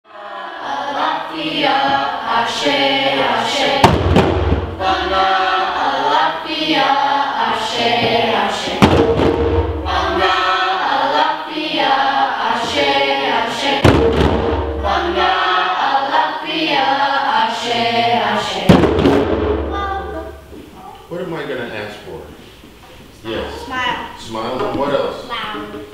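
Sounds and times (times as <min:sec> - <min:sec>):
children singing a chant: 0:00.1 - 0:20.5
djembe drumming: 0:03.4 - 0:06.2, 0:07.6 - 0:11.1, 0:12.6 - 0:16.2, 0:17.5 - 0:20.6.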